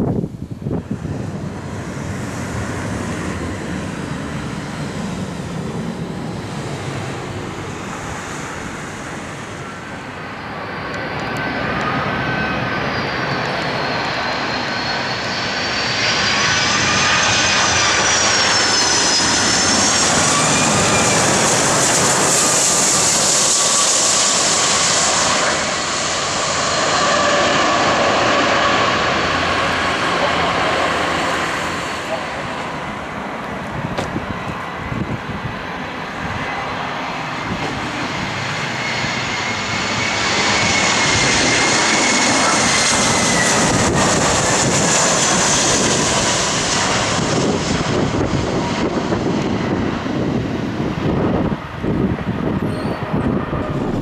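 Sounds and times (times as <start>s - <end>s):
jet engines with high whine: 0.0s - 54.0s.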